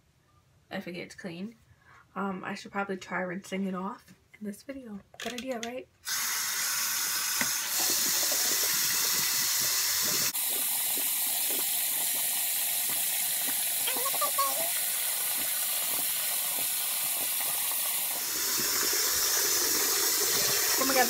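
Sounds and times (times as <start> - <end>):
tap water running into sink: 6.1 - 21.0
cloth rinsed under water: 10.4 - 21.0.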